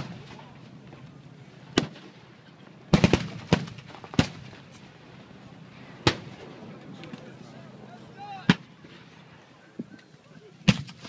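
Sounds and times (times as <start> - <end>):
cannons firing booms: 0.0 - 1.0, 1.7 - 2.3, 2.9 - 4.6, 6.0 - 6.6, 8.4 - 9.1, 10.6 - 11.0.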